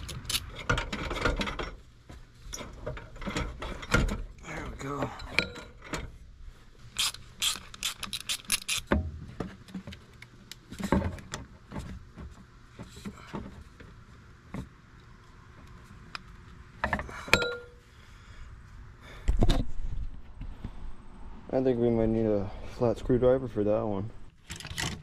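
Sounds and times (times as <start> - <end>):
metal and rubber clicks: 7.0 - 8.9.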